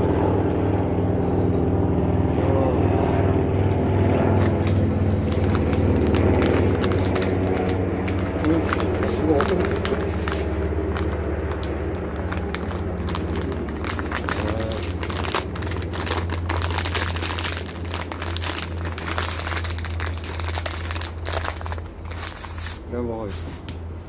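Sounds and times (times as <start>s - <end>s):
steady low hum: 0.0s - 24.0s
plastic pouch crinkling: 4.4s - 23.6s.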